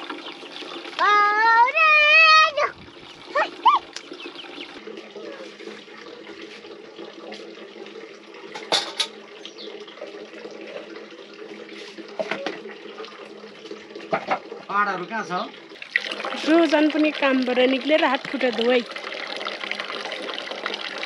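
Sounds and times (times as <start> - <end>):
tap water running: 0.0 - 21.0
knocks and splashes: 8.5 - 9.2, 11.8 - 14.7.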